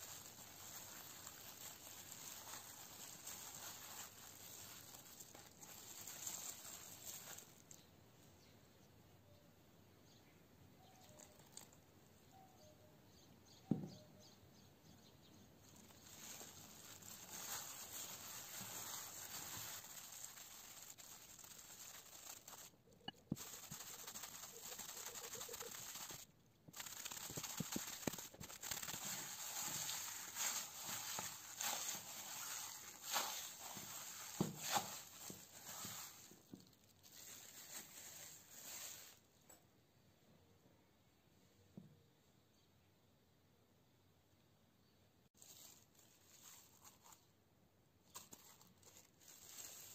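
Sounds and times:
gloved hand kneading dough: 0.0s - 7.8s, 15.7s - 39.2s, 45.3s - 49.9s.

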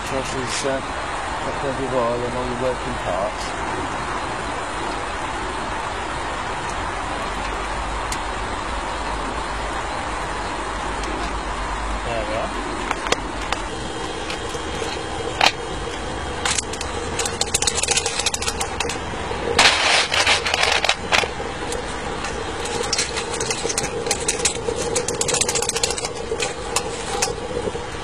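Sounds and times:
electric fan whirring: 0.0s - 28.0s
metal tool clinking and scraping: 16.4s - 19.0s, 19.6s - 27.4s.

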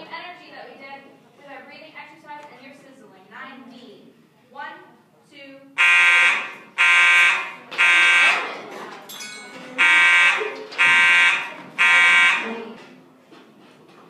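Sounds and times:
fire alarm horn blasts: 5.8s - 8.5s, 9.8s - 12.6s.

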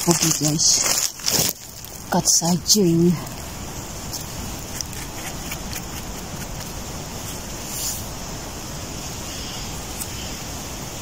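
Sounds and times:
rushing wind: 0.0s - 11.0s
knife trimming mushroom: 4.1s - 6.8s.

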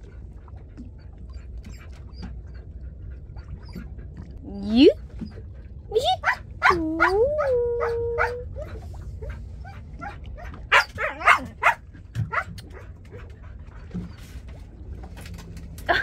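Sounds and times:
low rumble: 0.0s - 16.0s
dog howling: 6.2s - 8.8s.

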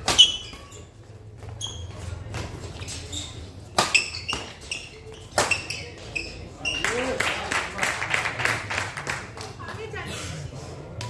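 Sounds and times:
racket striking shuttlecock: 0.0s - 0.6s, 3.7s - 4.6s
shoes squeaking on court: 0.0s - 7.2s.

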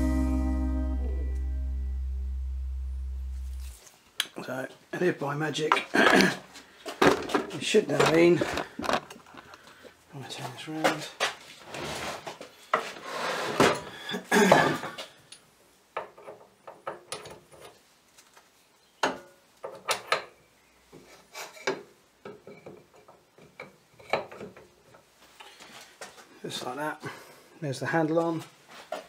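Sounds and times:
rubbing and scraping: 11.3s - 13.7s.

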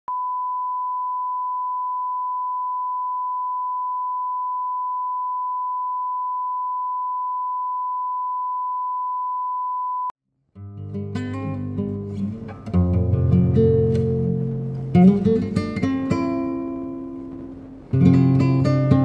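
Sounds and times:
steady sine-wave test tone: 0.1s - 10.1s.

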